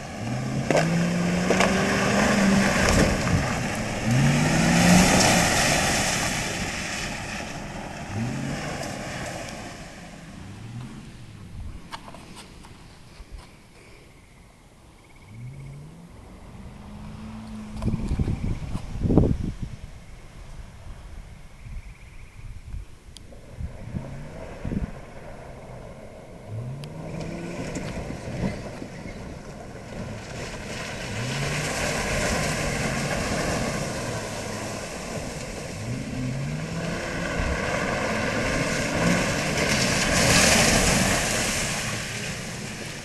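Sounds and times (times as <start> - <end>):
tyres churning and splashing water: 0.0 - 11.4, 23.4 - 43.0
truck engine revving: 0.0 - 11.5, 29.8 - 43.0.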